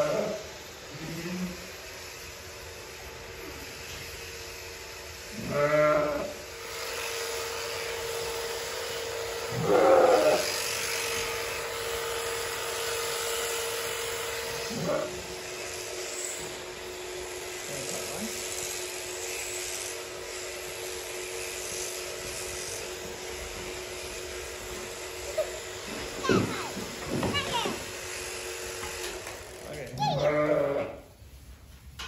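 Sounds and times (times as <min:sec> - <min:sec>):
electric shearing handpiece humming: 0:00.0 - 0:31.2
sheep bleating: 0:05.3 - 0:06.4, 0:09.5 - 0:10.5, 0:30.0 - 0:31.0.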